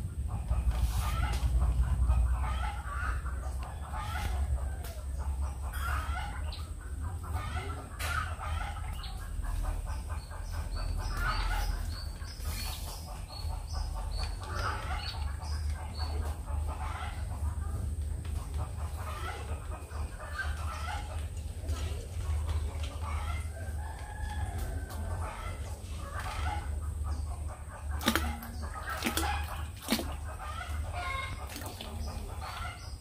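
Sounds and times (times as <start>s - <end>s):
steady low rumble: 0.0s - 5.7s
chickens clucking: 0.0s - 33.0s.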